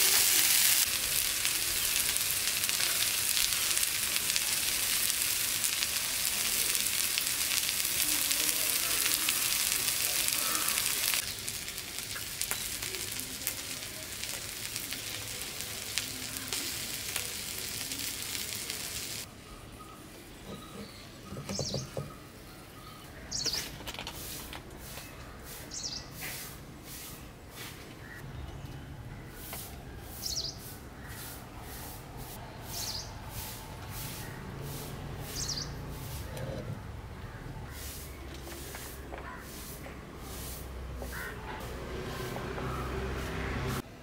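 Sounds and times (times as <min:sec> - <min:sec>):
fish sizzling in oil: 0:00.0 - 0:19.3.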